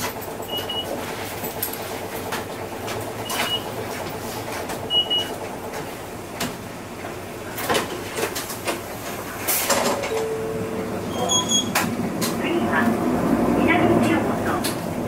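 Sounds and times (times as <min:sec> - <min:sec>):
diesel bus engine: 0:00.0 - 0:15.0
road noise: 0:01.0 - 0:15.0
high squeak: 0:11.0 - 0:11.8.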